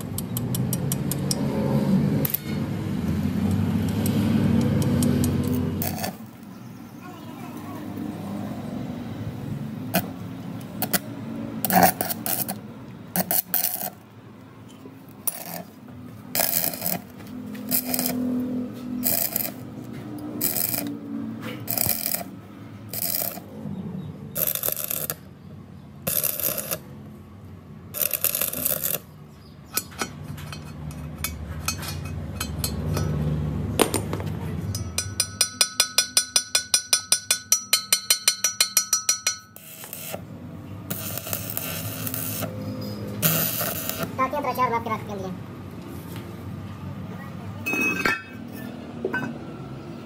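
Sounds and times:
welding arc crackling: 0:03.5 - 0:06.5, 0:09.9 - 0:14.1, 0:15.1 - 0:23.5, 0:24.4 - 0:25.3, 0:26.0 - 0:27.0, 0:27.9 - 0:29.2, 0:39.6 - 0:44.5.

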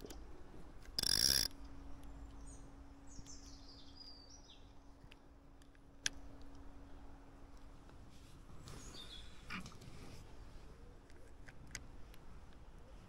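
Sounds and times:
small birds chirping: 0:02.0 - 0:05.0, 0:08.6 - 0:09.7.

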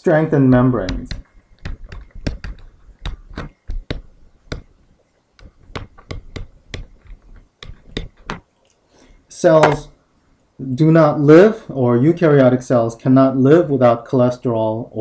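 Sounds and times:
pen stylus tapping on tablet: 0:00.5 - 0:04.8, 0:05.4 - 0:08.4.

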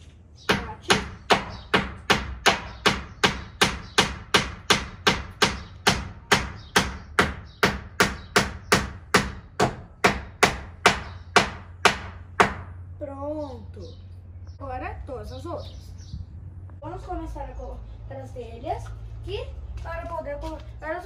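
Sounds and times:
hammer striking wood: 0:00.5 - 0:12.8.

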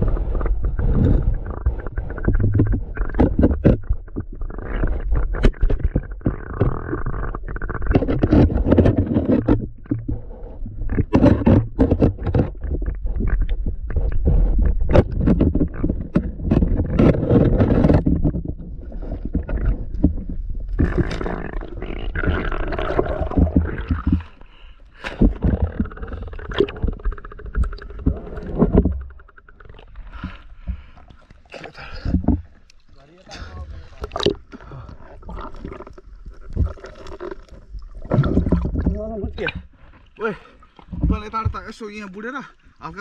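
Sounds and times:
muffled underwater rumble: 0:00.0 - 0:41.8
underwater clicks and knocks: 0:00.3 - 0:42.3
water washing: 0:18.9 - 0:43.0.

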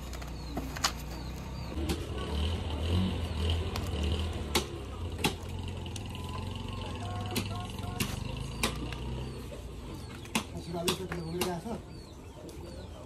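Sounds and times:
knife chopping meat on wood: 0:10.3 - 0:11.6.

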